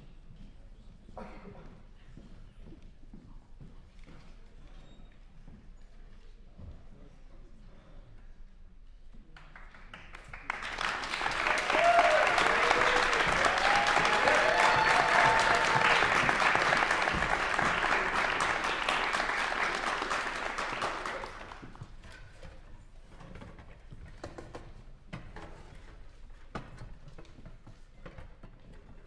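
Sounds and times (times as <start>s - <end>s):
audience applauding: 9.4s - 21.9s.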